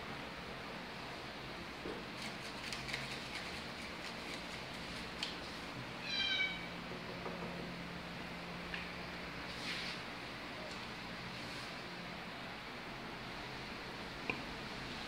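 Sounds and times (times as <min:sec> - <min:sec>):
cat meowing: 0:06.0 - 0:06.7.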